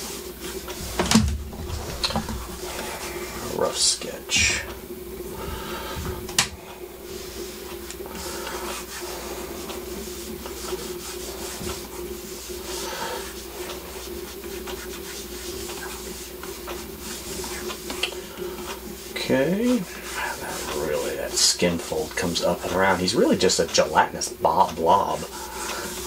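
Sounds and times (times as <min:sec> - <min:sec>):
steady low hum: 0:00.0 - 0:26.0
stylus scratching on tablet: 0:07.0 - 0:26.0.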